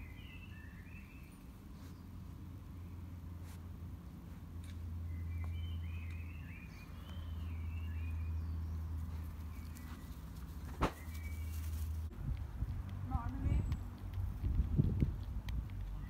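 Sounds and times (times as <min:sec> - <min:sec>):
faint bird chirps: 0:00.0 - 0:02.1
steady low rumble: 0:11.8 - 0:16.0.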